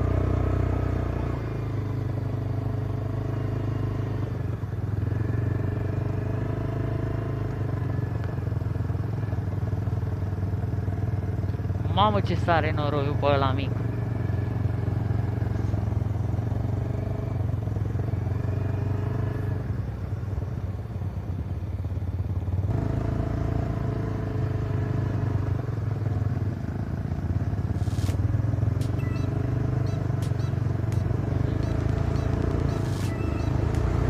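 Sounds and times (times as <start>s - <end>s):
quad engine running: 0.0s - 34.0s
sharp clicks: 28.8s - 34.0s.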